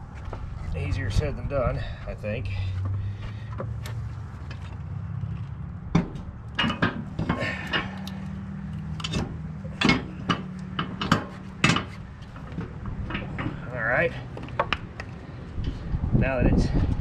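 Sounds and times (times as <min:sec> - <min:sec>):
metal frame clanking and knocking: 0:02.7 - 0:15.9.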